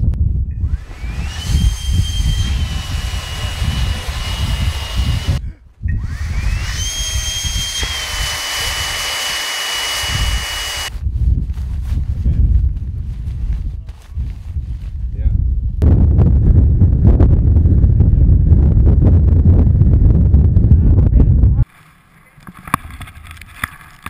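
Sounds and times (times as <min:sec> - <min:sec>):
electric fan whining with rushing air: 0:00.5 - 0:10.9.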